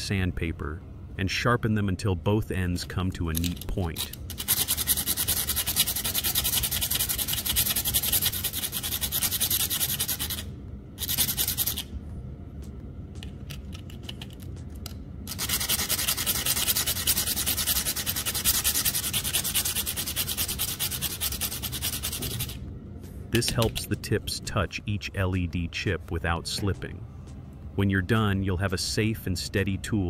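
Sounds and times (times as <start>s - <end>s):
wire scratching on sandpaper: 3.8s - 11.9s, 15.3s - 22.6s.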